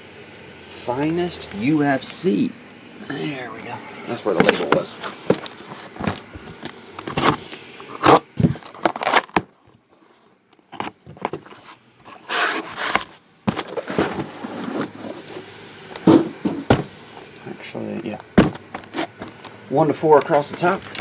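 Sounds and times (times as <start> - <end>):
cardboard scraping rustle: 4.4 - 17.3, 18.4 - 19.4.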